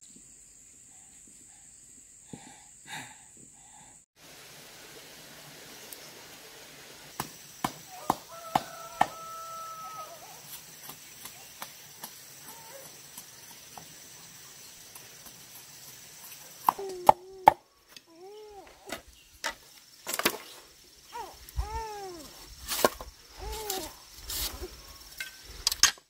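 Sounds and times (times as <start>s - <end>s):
sharp chopping knocks: 7.2s - 9.2s.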